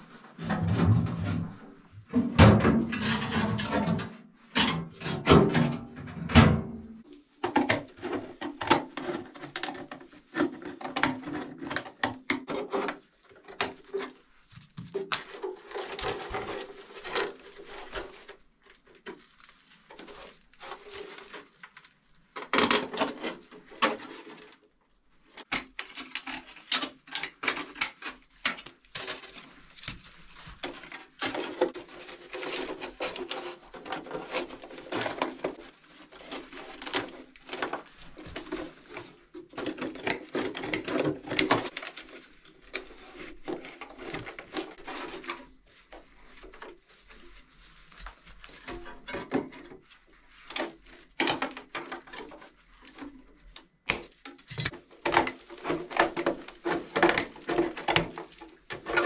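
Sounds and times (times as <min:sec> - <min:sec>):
straw rustling: 0:12.5 - 0:59.0.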